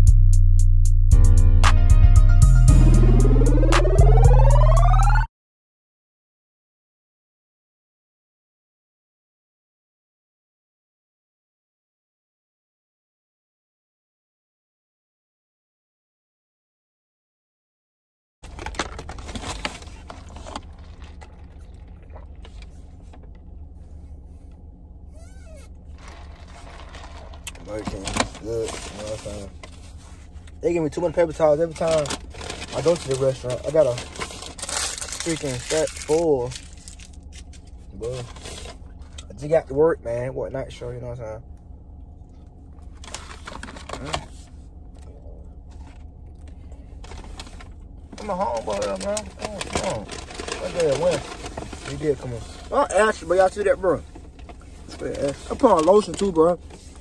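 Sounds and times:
paper bag rustling: 18.4s - 23.1s, 25.9s - 30.4s, 31.3s - 38.8s, 42.9s - 44.5s, 46.9s - 53.3s
car cabin hum: 18.4s - 57.0s
chewing: 20.8s - 22.7s.

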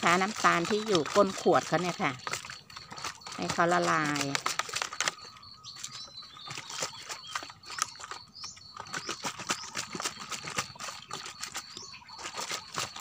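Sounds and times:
liquid sloshing in bottle: 0.0s - 13.0s.

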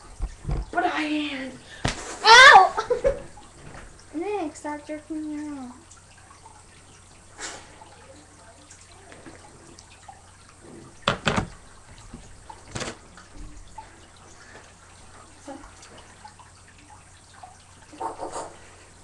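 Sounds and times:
sharp knocks and bumps: 0.2s - 0.8s, 11.0s - 13.0s.

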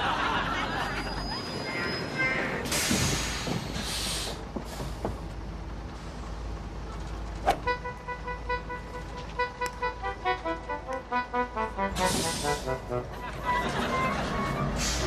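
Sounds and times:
bus engine idling: 0.0s - 15.0s
light staccato music: 7.5s - 13.7s.

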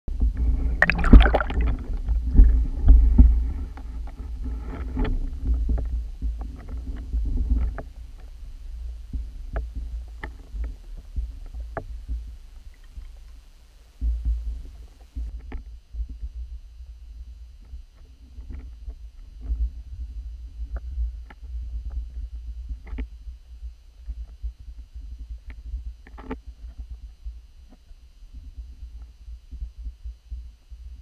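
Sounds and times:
underwater knocks and water movement: 0.1s - 16.7s
underwater low rumble: 0.1s - 31.0s.

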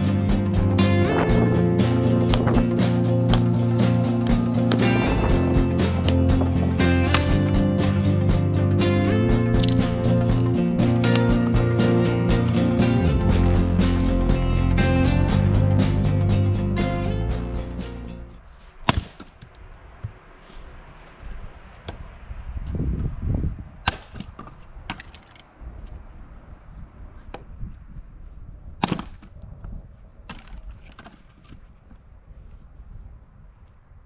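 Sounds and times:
dull low rumble: 0.0s - 18.4s
music: 0.0s - 18.4s
axe chopping firewood: 4.2s - 7.7s, 18.8s - 19.5s, 23.9s - 25.3s, 28.8s - 29.4s.

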